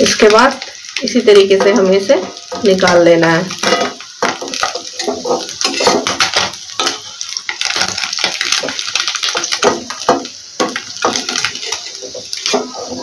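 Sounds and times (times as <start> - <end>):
oil sizzling and crackling: 0.0 - 13.0
metal spatula scraping pan: 3.6 - 7.2, 9.6 - 13.0.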